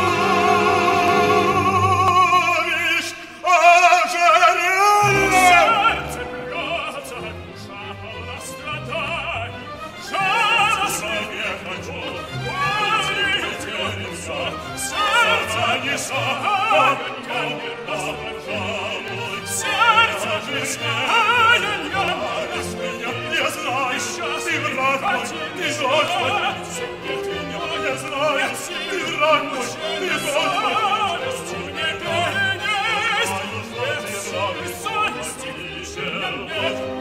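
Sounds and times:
man singing opera: 0.0s - 37.0s
symphony orchestra playing: 0.0s - 37.0s.

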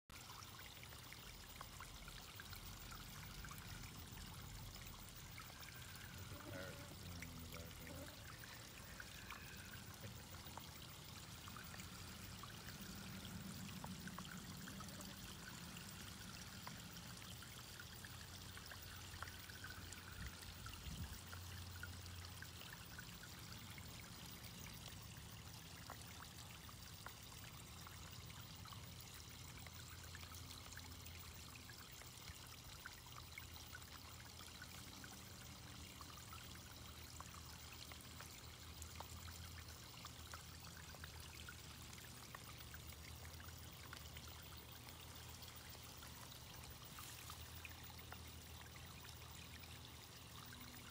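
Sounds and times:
water trickling: 0.1s - 50.9s.

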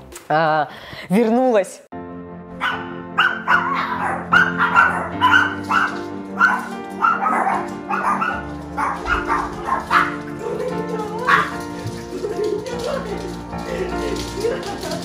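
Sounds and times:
background music: 0.0s - 15.0s
small dogs barking: 2.6s - 12.1s.

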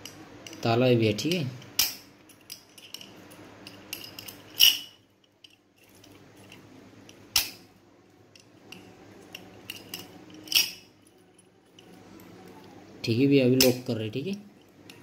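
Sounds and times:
padlock shackle clicking: 1.6s - 3.1s.

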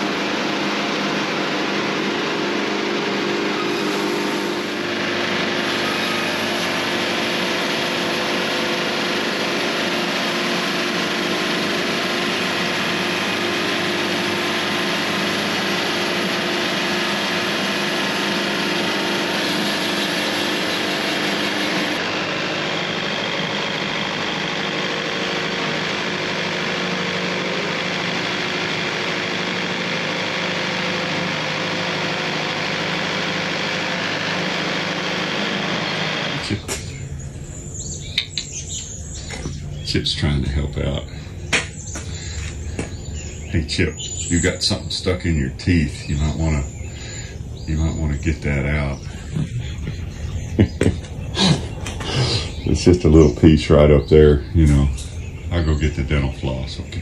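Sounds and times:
band sawmill sawing log: 0.0s - 37.0s.

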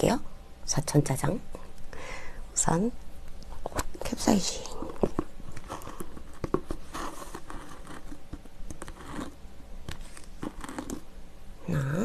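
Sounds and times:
packet crinkling: 4.6s - 11.0s
person humming: 11.6s - 12.0s.

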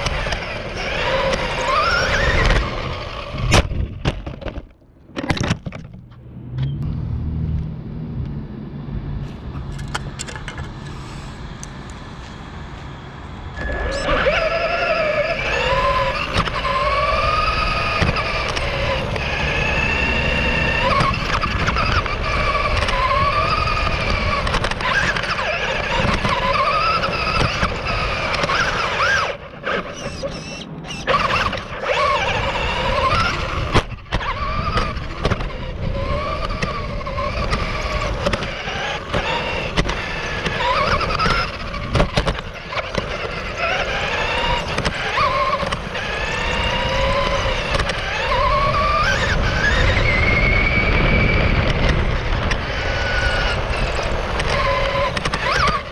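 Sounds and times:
toy car motor whining: 0.0s - 3.6s, 13.6s - 55.9s
steady low rumble: 2.7s - 14.1s.

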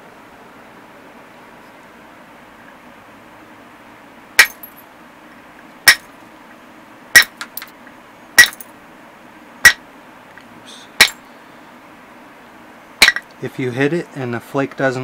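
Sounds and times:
antler striking metal punch: 4.4s - 4.7s, 5.9s - 6.1s, 7.2s - 7.6s, 8.4s - 8.7s, 9.6s - 9.8s, 11.0s - 11.2s, 13.0s - 13.2s.

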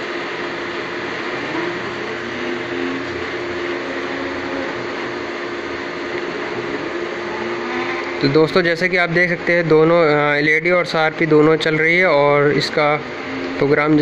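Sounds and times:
cooling fans whirring: 0.0s - 14.0s
low hum: 0.0s - 14.0s.

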